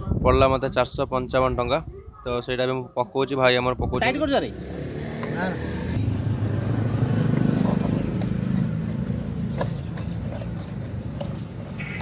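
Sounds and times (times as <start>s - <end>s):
vehicle engine humming: 4.4s - 12.0s.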